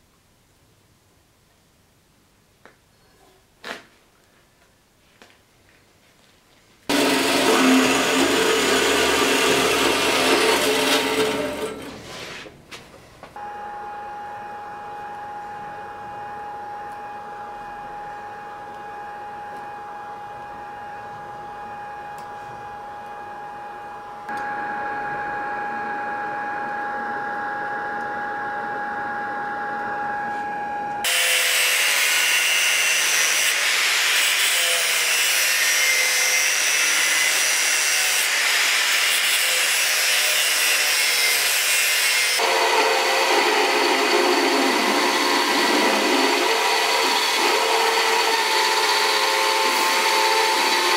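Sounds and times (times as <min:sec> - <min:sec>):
angle grinder cutting steel: 0:06.9 - 0:12.0, 0:31.0 - 0:50.9
belt grinder grinding metal: 0:06.9 - 0:12.0, 0:31.1 - 0:50.9
steady hum with thin whine: 0:11.9 - 0:31.0.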